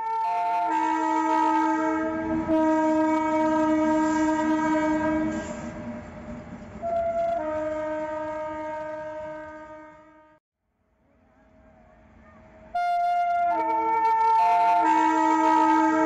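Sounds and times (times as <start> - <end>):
locomotive multi-tone horn: 0.0 - 5.9, 6.8 - 10.4, 12.7 - 16.0
train rumbling and clattering: 1.3 - 9.8.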